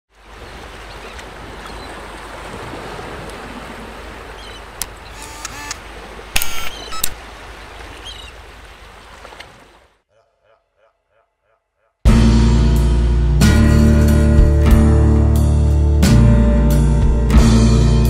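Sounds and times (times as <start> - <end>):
sharp clicks: 4.8 - 7.2.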